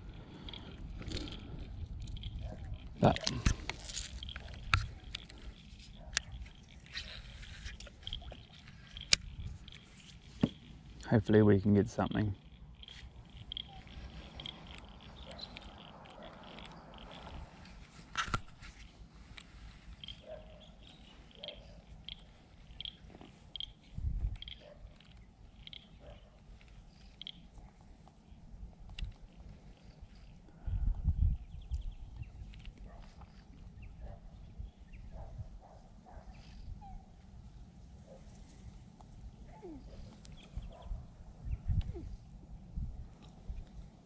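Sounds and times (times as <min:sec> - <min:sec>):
fishing gear clicks and knocks: 0:00.0 - 0:30.5.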